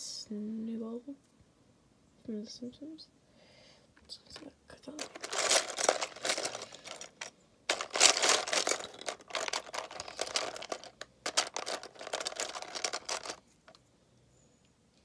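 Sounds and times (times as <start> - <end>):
plastic bricks clattering: 5.0 - 13.4.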